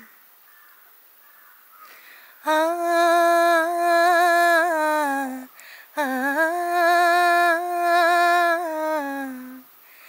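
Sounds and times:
woman taking quick breath: 0:01.8 - 0:02.4, 0:05.5 - 0:05.9
woman singing unaccompanied: 0:02.4 - 0:09.7.

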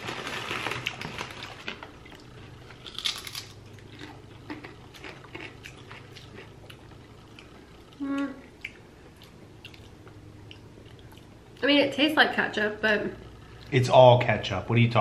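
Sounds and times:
potato chips crunching: 0:00.0 - 0:07.5.

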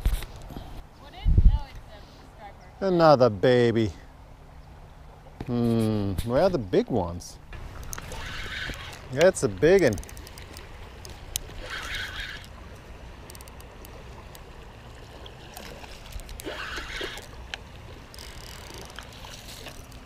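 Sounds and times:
fishing reel handling noise: 0:07.7 - 0:14.5, 0:15.6 - 0:20.0
fish splashing in water: 0:13.4 - 0:20.0.

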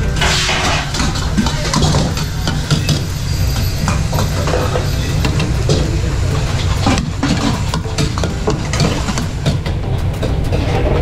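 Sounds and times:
low kitchen rumble: 0:00.0 - 0:11.0
metal ladle scraping a wok: 0:00.1 - 0:01.3.

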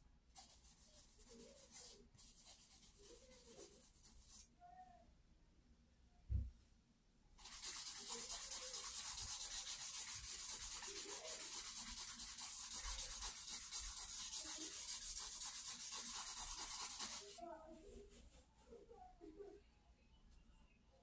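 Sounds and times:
charcoal scraping on paper: 0:00.4 - 0:04.5, 0:07.4 - 0:17.4
soft thump: 0:06.3 - 0:06.6.

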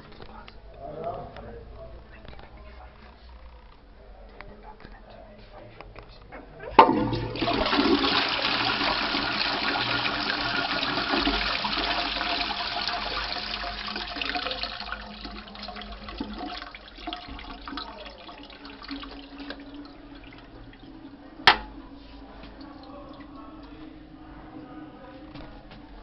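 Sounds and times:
toilet flushing: 0:06.7 - 0:23.8
toilet seat clacking down: 0:06.8 - 0:08.2, 0:21.4 - 0:21.8.

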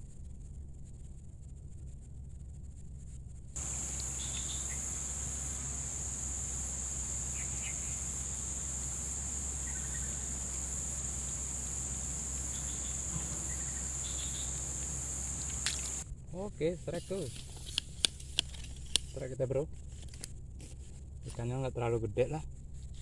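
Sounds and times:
low hum: 0:00.0 - 0:23.0
insects droning: 0:03.6 - 0:19.7.

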